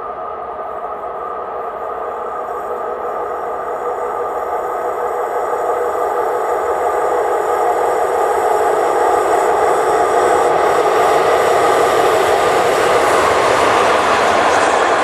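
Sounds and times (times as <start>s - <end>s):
freight train rolling on rails: 9.6s - 15.0s.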